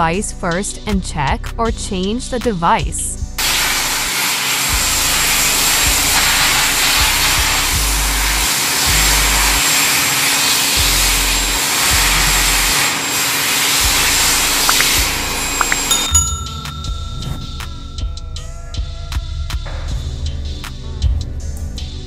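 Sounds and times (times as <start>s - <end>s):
electric air blower running: 3.4s - 16.0s.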